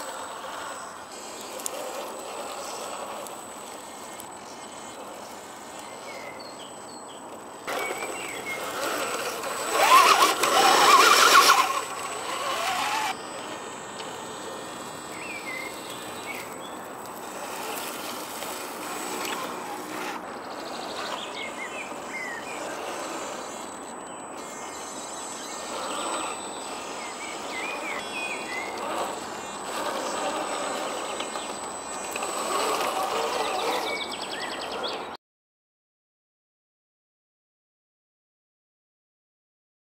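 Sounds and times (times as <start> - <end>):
birds chirping: 0.0 - 35.2
electric motor whine: 0.0 - 35.2
high insect-like tone: 7.6 - 34.5.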